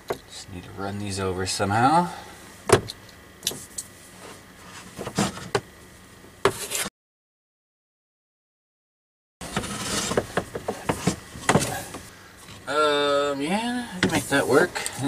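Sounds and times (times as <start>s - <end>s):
knocks taps and rustles: 9.5s - 12.6s.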